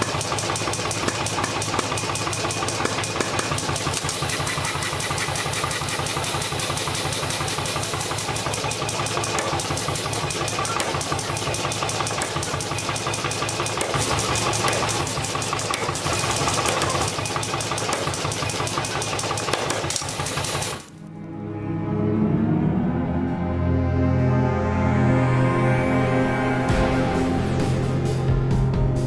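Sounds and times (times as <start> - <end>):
power hammer pounding on chisel: 0.0 - 20.9.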